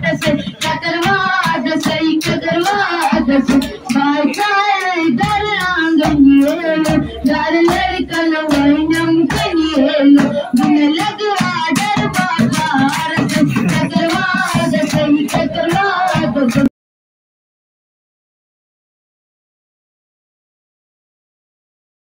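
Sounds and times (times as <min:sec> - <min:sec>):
boy singing into a microphone: 0:00.0 - 0:16.7
children clapping along: 0:00.0 - 0:16.7
children singing: 0:00.0 - 0:16.7.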